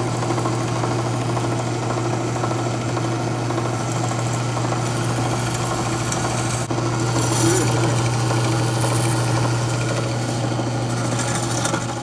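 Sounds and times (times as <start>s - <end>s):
drill press motor humming: 0.0s - 12.0s
metal scraping gasket residue: 10.8s - 12.0s.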